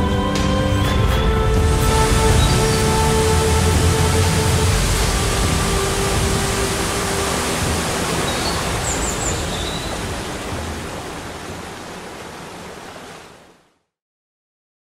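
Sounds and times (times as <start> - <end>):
waterfall pouring: 1.6 - 13.5.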